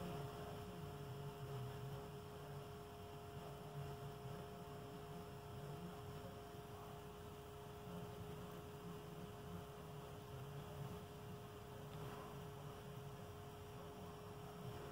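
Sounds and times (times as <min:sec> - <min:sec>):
faint electrical hum: 0:00.0 - 0:14.9.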